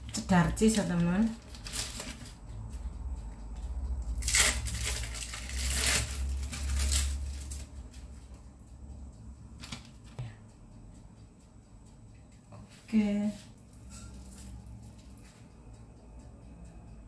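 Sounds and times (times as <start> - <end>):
plastic wrappers crinkling: 1.4 - 2.3, 4.2 - 7.6.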